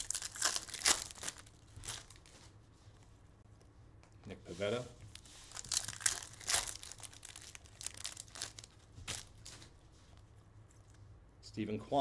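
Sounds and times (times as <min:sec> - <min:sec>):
foil wrapper crinkling and tearing: 0:00.0 - 0:02.3, 0:05.1 - 0:09.7.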